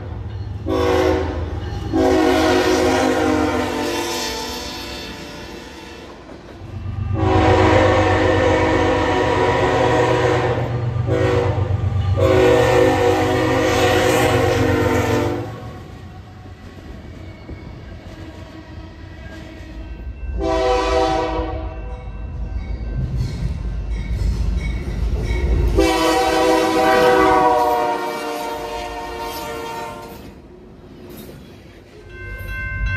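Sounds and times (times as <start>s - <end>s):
locomotive air horn blasts: 0.6s - 4.6s, 7.1s - 15.6s, 20.4s - 21.7s, 25.8s - 30.2s.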